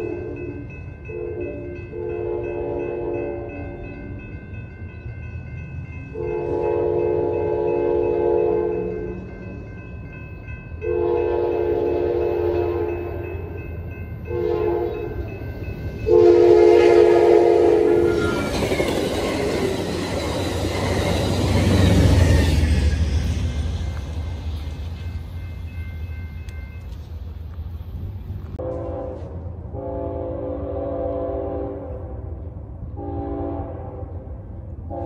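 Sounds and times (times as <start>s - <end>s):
train horn blasts: 0.0s - 3.9s, 6.1s - 9.3s, 10.8s - 13.6s, 14.2s - 15.3s, 16.0s - 18.6s, 28.6s - 35.0s
train rumbling past: 0.0s - 35.0s.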